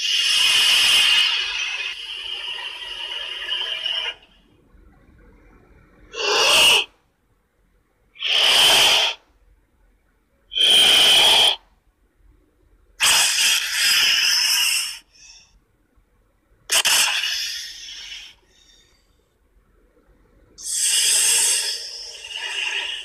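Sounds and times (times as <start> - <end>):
breathy hissing monster cries: 0.0 - 4.3, 6.1 - 6.9, 8.2 - 9.2, 10.5 - 11.6, 13.0 - 15.4, 16.7 - 18.8, 20.6 - 23.0.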